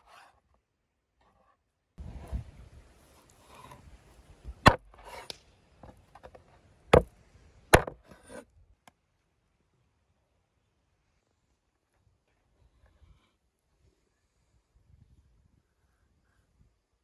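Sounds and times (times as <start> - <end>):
knife chopping on wooden board: 4.6 - 5.3, 7.8 - 8.0.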